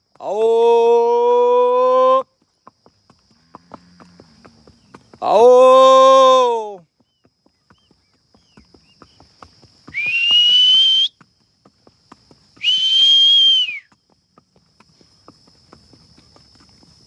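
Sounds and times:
horse hooves clopping on dirt: 0.0 - 17.0
person whistling loudly: 9.9 - 11.2, 12.6 - 13.9.

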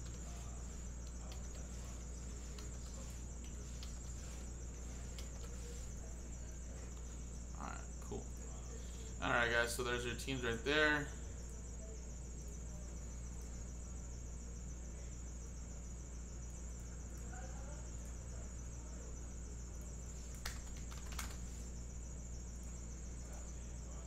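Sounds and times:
low electrical hum: 0.0 - 24.0
sharp clicks: 20.3 - 21.4.

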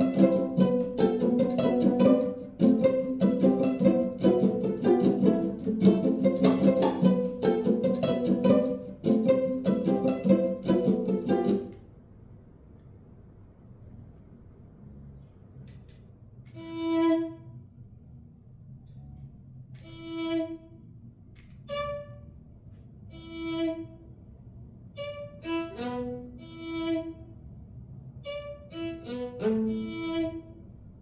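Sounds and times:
violin playing: 0.0 - 11.8, 16.5 - 17.6, 19.8 - 20.8, 21.6 - 22.3, 23.1 - 24.1, 25.0 - 27.4, 28.2 - 30.7
faint low hum: 0.0 - 31.0.

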